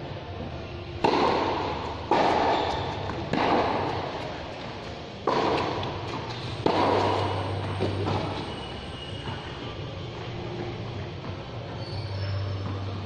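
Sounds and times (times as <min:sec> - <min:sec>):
tennis racket hitting ball: 0:01.0 - 0:09.6.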